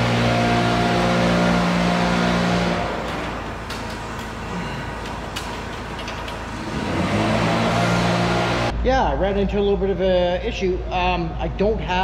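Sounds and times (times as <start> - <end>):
machinery humming: 0.0 - 8.7.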